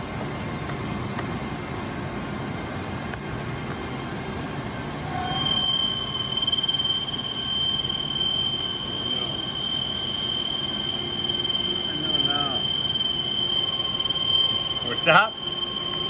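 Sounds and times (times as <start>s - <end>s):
high-pitched whine: 0.0s - 16.0s
industrial machinery hum: 0.0s - 16.0s
click: 3.1s - 3.8s.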